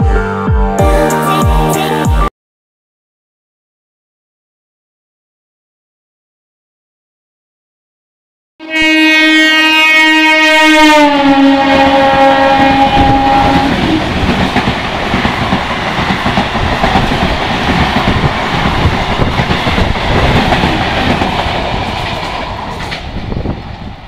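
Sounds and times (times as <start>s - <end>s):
train horn: 8.6s - 14.1s
train wheels clattering on rails: 13.0s - 23.4s.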